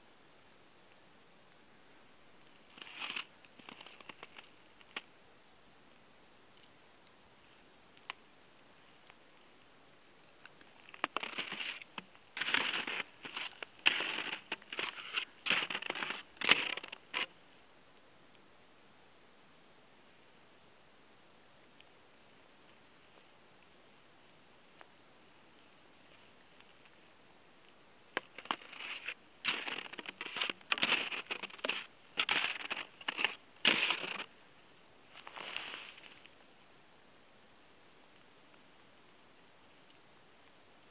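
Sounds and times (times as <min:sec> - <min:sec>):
footsteps crunching in snow: 0:11.0 - 0:17.3, 0:28.2 - 0:34.3, 0:35.2 - 0:36.2.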